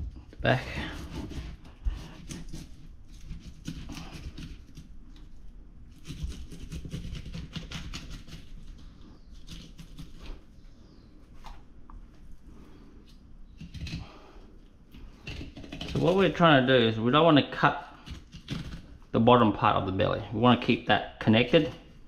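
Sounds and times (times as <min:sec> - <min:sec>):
knife cutting through fish: 0:00.8 - 0:04.8.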